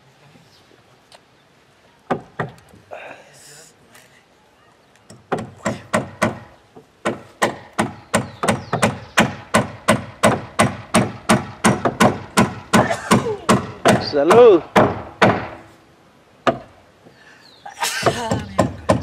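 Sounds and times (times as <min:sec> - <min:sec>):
hammering on wooden hull: 0:05.1 - 0:15.6, 0:16.4 - 0:16.7, 0:18.0 - 0:19.0.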